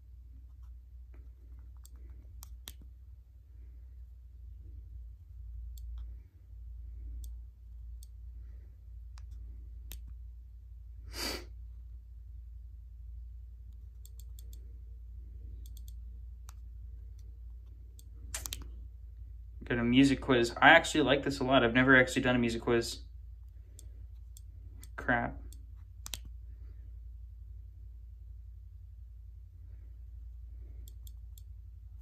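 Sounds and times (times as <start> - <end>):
click wheel clicking: 15.6 - 16.6, 17.9 - 18.7.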